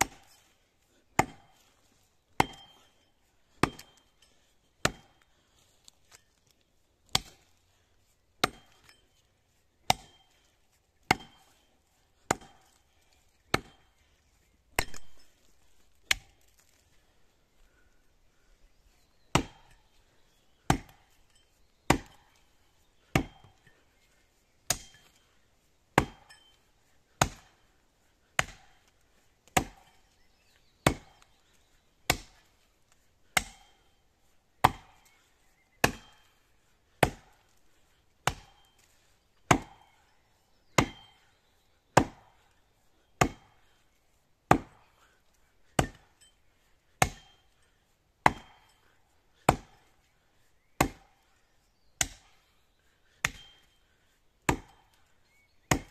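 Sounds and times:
axe chopping tree trunk: 0.0s - 0.5s, 1.1s - 6.4s, 7.0s - 7.6s, 8.4s - 9.0s, 9.8s - 14.0s, 14.7s - 16.9s, 19.3s - 19.8s, 20.6s - 21.2s, 21.9s - 23.8s, 24.6s - 30.2s, 30.8s - 33.9s, 34.5s - 37.6s, 38.2s - 40.1s, 40.7s - 41.3s, 41.9s - 42.6s, 43.2s - 43.8s, 44.5s - 46.2s, 46.9s - 50.0s, 50.6s - 51.2s, 52.0s - 52.4s, 53.0s - 55.9s.

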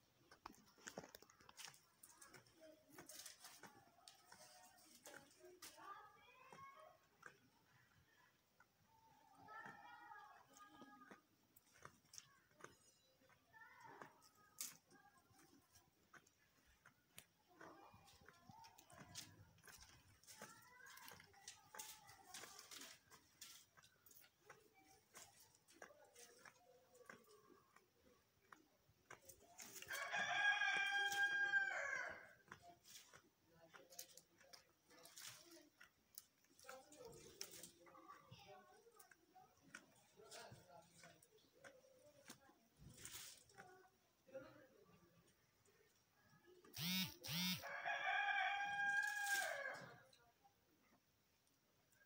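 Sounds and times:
rooster crowing: 30.0s - 32.2s, 46.8s - 49.8s.

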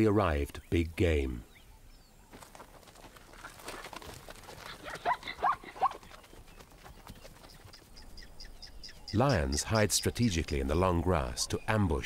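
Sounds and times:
hoof steps in grass: 2.3s - 8.2s
zebra barking: 4.8s - 6.0s.

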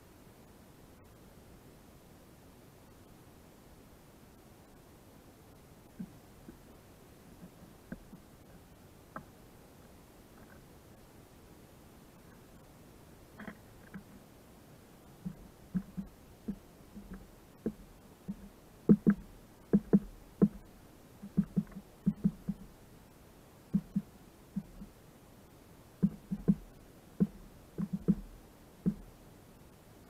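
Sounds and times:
bird pecking on wooden log: 15.2s - 22.7s, 23.7s - 24.9s, 26.0s - 29.1s.

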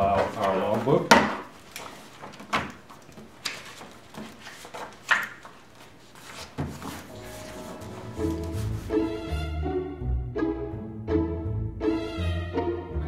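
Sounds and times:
book pages turning: 0.0s - 9.1s
soft background music: 6.9s - 13.0s.

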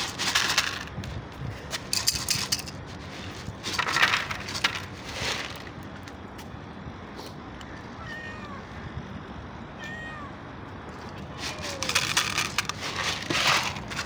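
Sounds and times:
dry kibble rattling in plastic jar: 0.0s - 1.0s, 1.8s - 5.7s, 11.4s - 14.0s.

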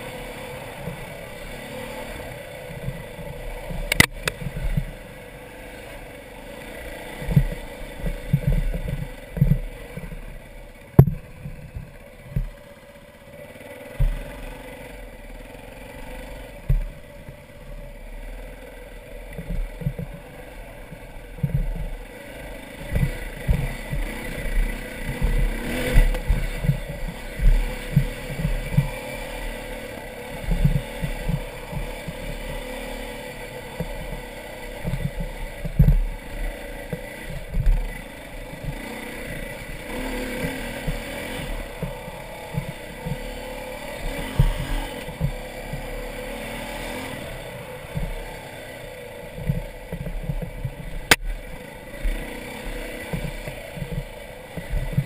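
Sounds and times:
dirt bike engine running: 0.0s - 55.0s
low thumps from bumps: 2.0s - 5.4s, 7.0s - 12.7s, 13.9s - 14.6s, 16.0s - 55.0s
sharp click: 3.8s - 4.5s, 51.0s - 51.4s.

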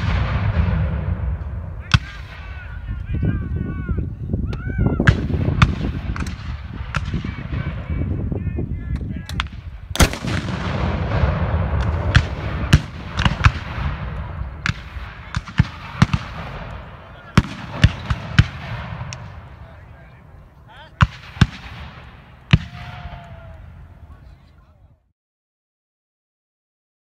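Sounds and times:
gunshots cracking: 0.0s - 2.6s, 9.3s - 20.1s, 20.9s - 23.3s
cannon boom: 0.0s - 2.8s, 5.0s - 8.2s, 9.3s - 23.7s.

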